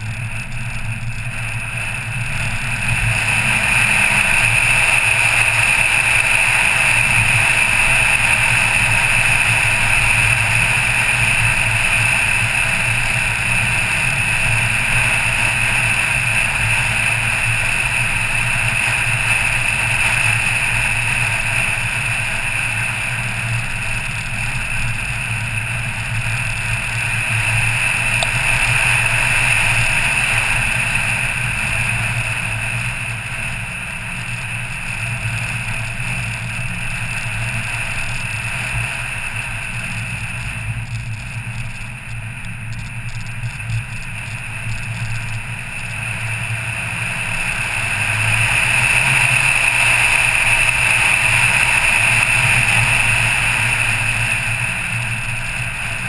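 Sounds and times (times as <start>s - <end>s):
car engine running: 0.0s - 56.0s.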